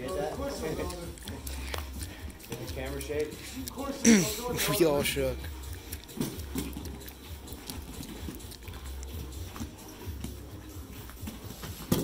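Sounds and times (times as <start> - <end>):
bodies shifting against mat: 9.2 - 12.0.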